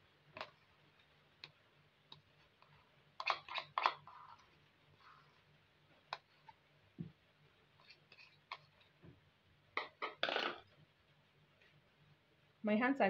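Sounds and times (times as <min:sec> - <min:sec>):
metal spoon scraping plastic bowl: 0:02.6 - 0:05.3.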